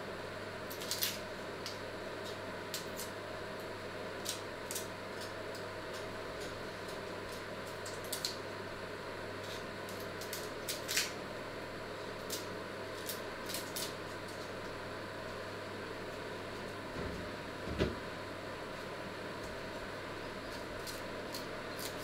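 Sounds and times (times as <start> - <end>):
steady low hum: 0.0 - 22.0
peel crackling and clicking: 0.7 - 8.5, 9.4 - 11.2, 12.2 - 15.4, 20.4 - 22.0.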